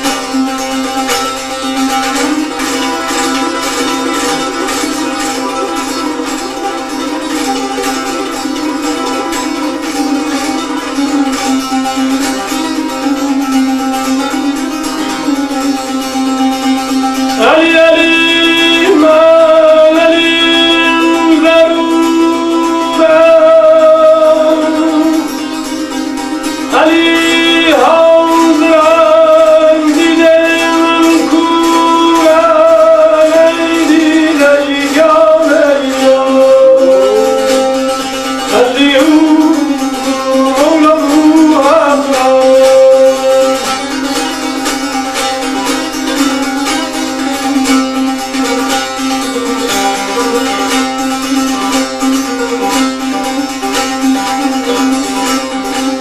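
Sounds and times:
plucked lute: 0.0 - 56.0
person singing long held notes: 17.4 - 25.4, 26.7 - 43.8.

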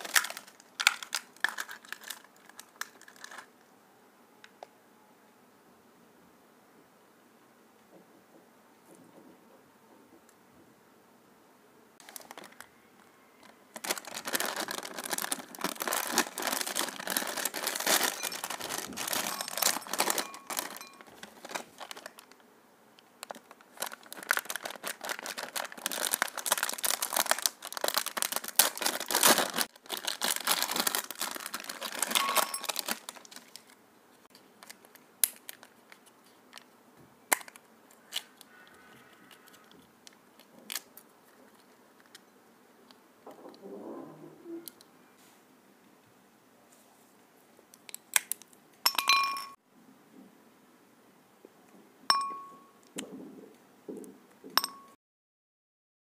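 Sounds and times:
plastic snack packets crinkling: 0.0 - 3.6, 12.0 - 12.8, 13.4 - 22.4, 23.0 - 36.7, 39.3 - 42.2
light clicks of wrappers: 0.0 - 3.7, 12.0 - 12.7, 13.4 - 38.5, 39.1 - 43.0.

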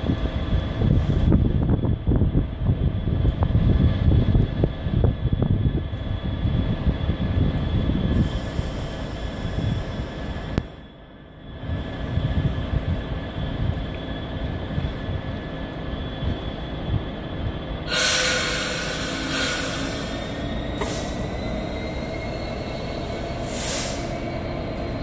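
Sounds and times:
diesel locomotive engine rumble: 0.0 - 25.0
train wheels screeching: 4.6 - 10.9, 15.6 - 25.0.

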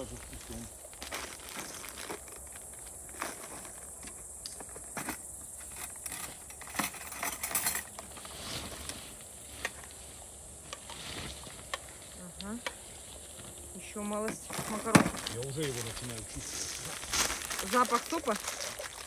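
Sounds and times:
bag rustling: 0.0 - 4.0, 13.1 - 19.0
insects chirring: 0.0 - 19.0
plastic container clatter: 14.2 - 16.3.

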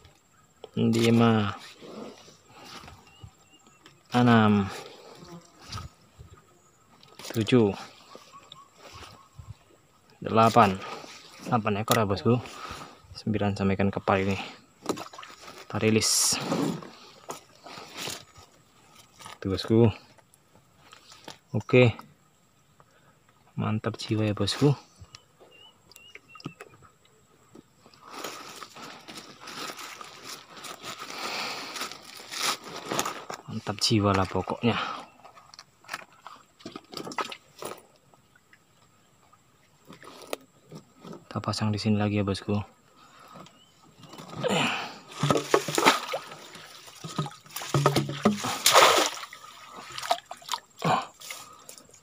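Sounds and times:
water sloshing and splashing: 14.8 - 19.4, 35.8 - 41.3, 43.2 - 52.0
rustling and crackling of handling: 14.8 - 21.6, 27.6 - 38.2, 45.1 - 50.5.

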